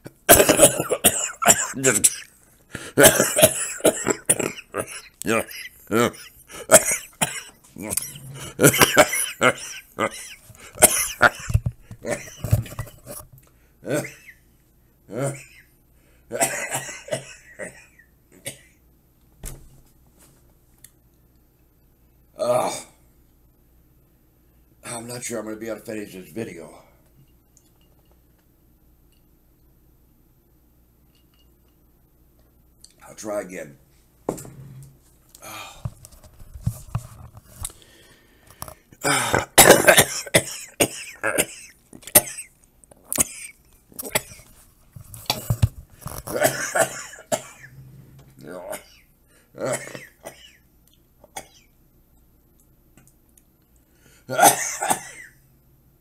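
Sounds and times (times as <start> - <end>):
man clearing throat: 0.3 - 2.3, 2.9 - 12.4, 13.8 - 14.4, 15.1 - 15.7, 16.4 - 18.8, 39.0 - 42.5, 46.3 - 47.7, 49.6 - 50.6, 54.3 - 55.4
man coughing: 0.3 - 12.5, 13.8 - 14.4, 16.4 - 18.8, 39.0 - 42.5, 43.2 - 44.4, 46.3 - 47.7, 48.6 - 50.6, 54.3 - 55.4.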